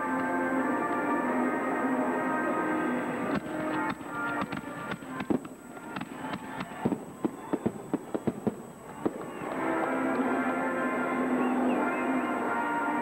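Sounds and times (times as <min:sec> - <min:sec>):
fireworks bangs and crackles: 0:03.3 - 0:10.2.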